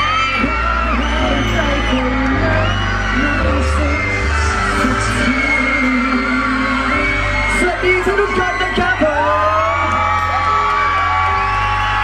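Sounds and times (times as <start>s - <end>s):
man singing: 0.0s - 10.0s
fans shrieking and cheering: 0.0s - 12.0s
live pop band playing: 0.0s - 12.0s.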